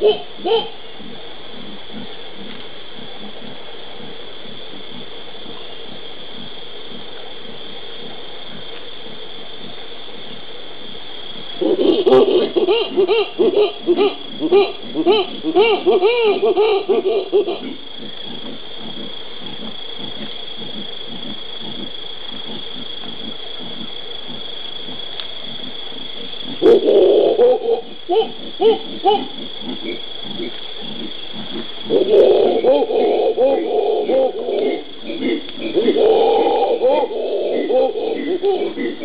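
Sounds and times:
monkeys howling: 0:11.6 - 0:17.8, 0:26.6 - 0:29.4, 0:31.9 - 0:39.0.

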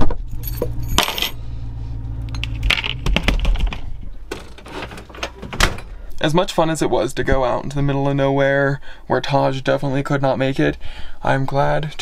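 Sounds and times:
steady low hum: 0:00.2 - 0:07.4
keys clinking and jingling: 0:00.3 - 0:01.4.

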